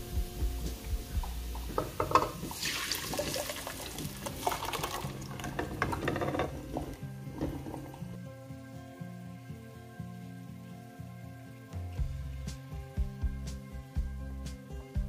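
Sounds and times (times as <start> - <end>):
puree pouring and sizzling: 0.0 - 8.2.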